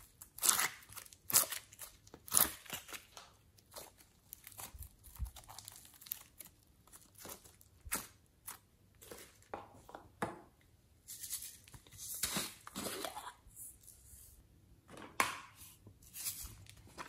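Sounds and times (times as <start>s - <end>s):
slime crackling and squelching: 0.0s - 9.5s.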